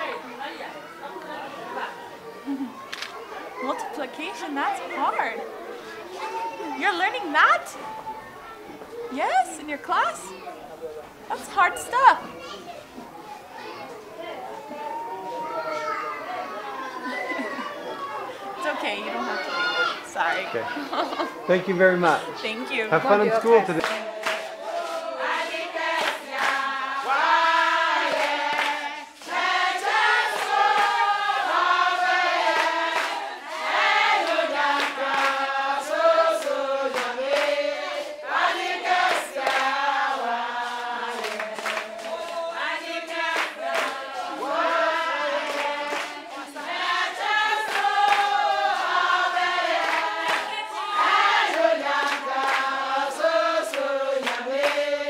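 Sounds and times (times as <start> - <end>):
hand claps: 2.9 - 3.2, 23.7 - 27.2, 36.4 - 38.1, 39.1 - 42.5, 43.3 - 44.5, 45.4 - 46.5, 47.2 - 48.9, 49.8 - 52.8, 53.7 - 54.9
women singing together: 3.6 - 5.4, 9.1 - 10.3, 11.3 - 12.2, 18.6 - 19.3, 22.2 - 55.0.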